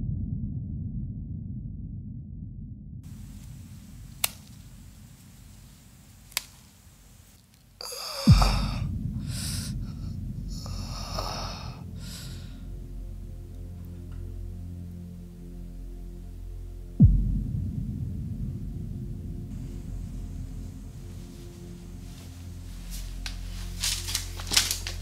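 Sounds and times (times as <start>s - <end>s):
low rumbling drone: 0.0s - 7.2s, 7.9s - 25.0s
low hum: 0.0s - 25.0s
rasping breath-like bursts: 7.0s - 13.3s
deep boom falling in pitch: 17.0s - 19.5s.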